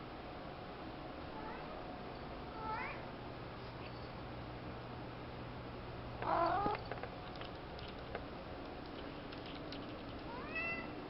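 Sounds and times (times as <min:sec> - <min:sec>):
cat calling: 0:06.2 - 0:06.8.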